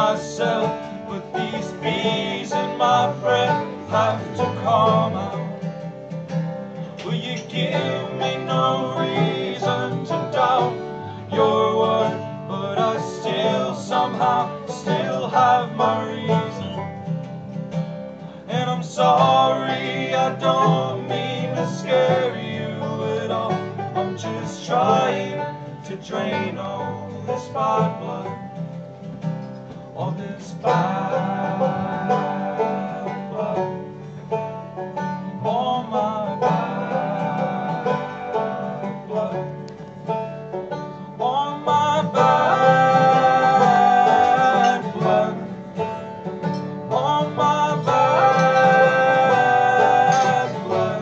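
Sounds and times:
acoustic band picking guitars: 0:00.0 - 0:51.0.

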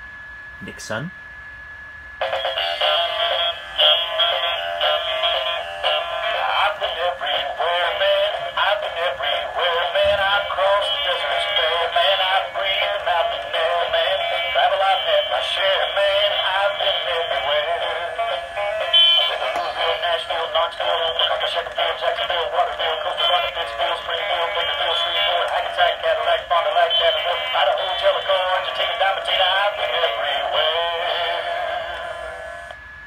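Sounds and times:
toy speaker song with singing: 0:02.2 - 0:32.7.

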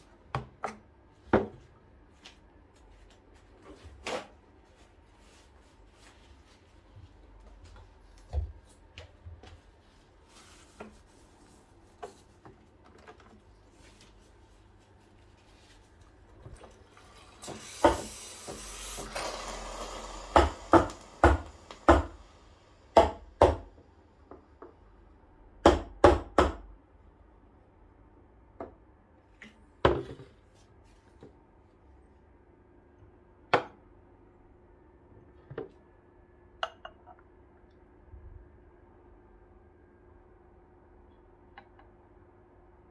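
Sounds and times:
glass set on counter: 0:36.6 - 0:37.2.

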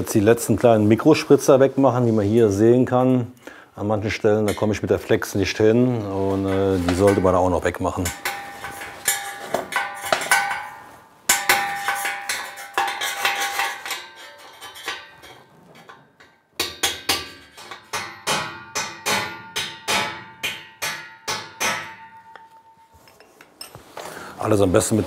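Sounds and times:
steel chisel scraping metal: 0:08.0 - 0:16.0.

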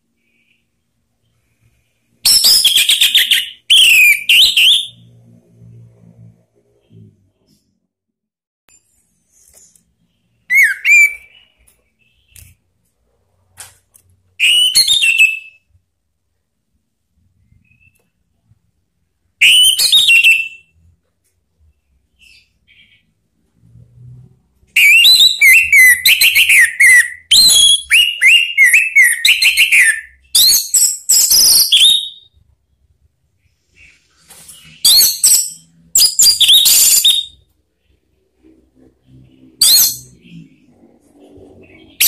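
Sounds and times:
thrush singing whistled phrases: 0:02.2 - 0:05.1, 0:10.4 - 0:11.6, 0:14.4 - 0:15.6, 0:19.4 - 0:20.7, 0:24.8 - 0:32.4, 0:34.6 - 0:37.4, 0:39.6 - 0:40.1.

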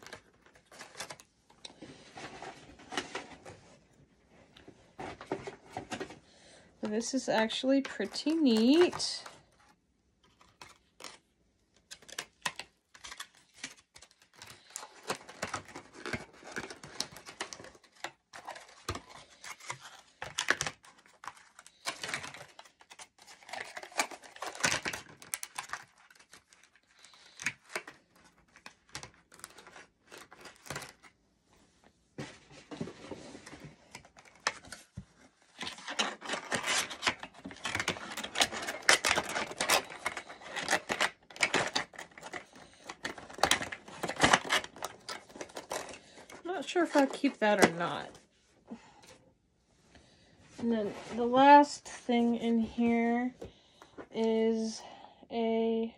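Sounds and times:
plastic packaging crinkling: 0:00.0 - 0:03.6, 0:06.8 - 0:09.6, 0:10.2 - 0:31.2, 0:33.1 - 0:48.2.

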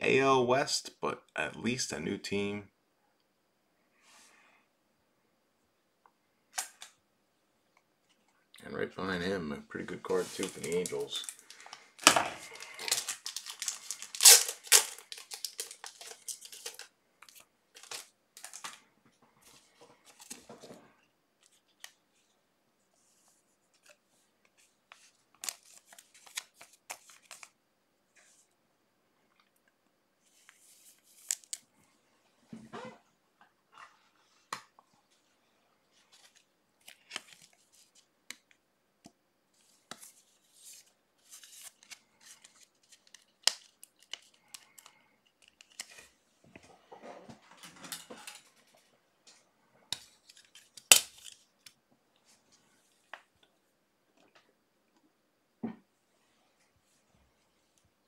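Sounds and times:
wrappers rustling: 0:10.1 - 0:18.8.

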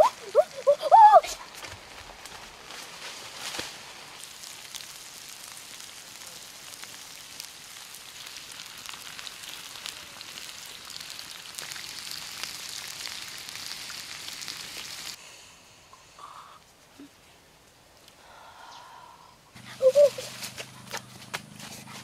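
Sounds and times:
crabs sizzling on hot stone: 0:03.6 - 0:15.2.

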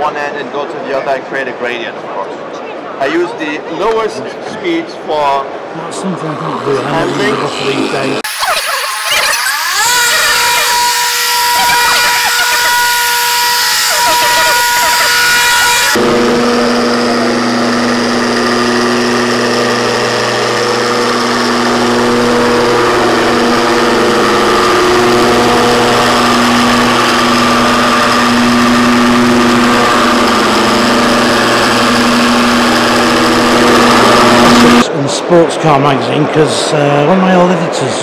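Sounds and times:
electric polisher motor hum: 0:06.6 - 0:34.8.

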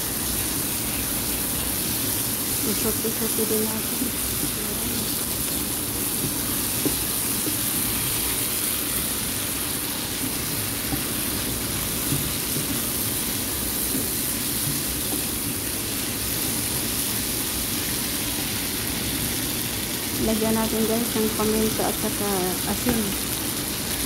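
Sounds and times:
meat sizzling in frying pan: 0:00.0 - 0:24.0
spatula stirring: 0:06.0 - 0:16.6
spatula knocking on pan: 0:10.2 - 0:13.0.

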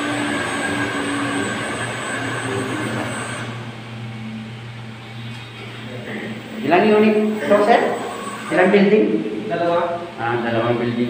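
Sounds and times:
water pump motors humming and whining: 0:00.0 - 0:11.0.

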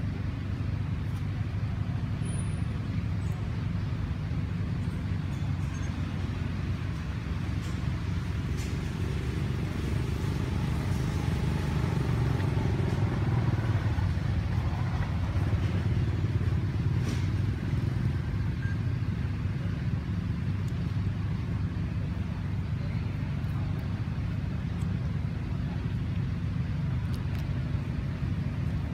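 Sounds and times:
low background rumble: 0:00.0 - 0:28.9.

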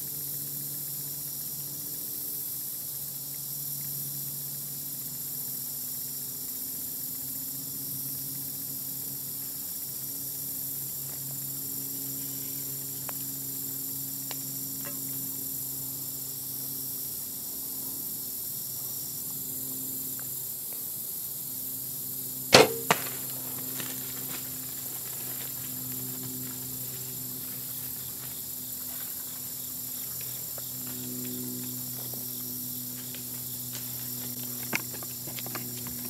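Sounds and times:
arrow striking deer: 0:22.5 - 0:23.4.

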